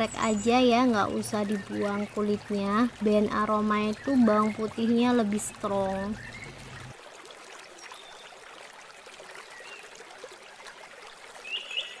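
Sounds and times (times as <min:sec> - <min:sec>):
small birds chirping: 0:00.0 - 0:06.9
water trickling: 0:00.0 - 0:12.0.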